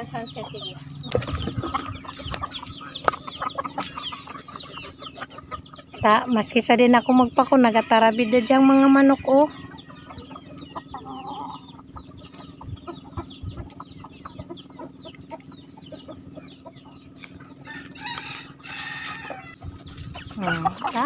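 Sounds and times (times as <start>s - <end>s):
chickens clucking: 0.0s - 21.0s
rooster crowing: 7.8s - 10.1s, 17.6s - 19.6s.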